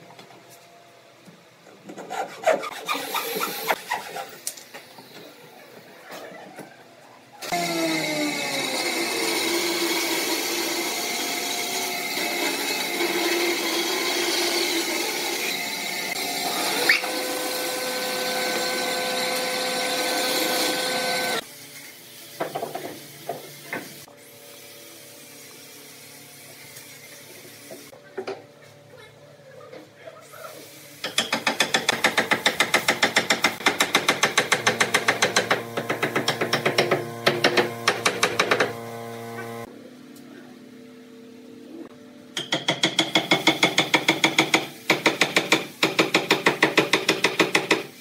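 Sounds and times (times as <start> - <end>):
band saw cutting wood: 7.5 - 21.4, 33.5 - 39.7.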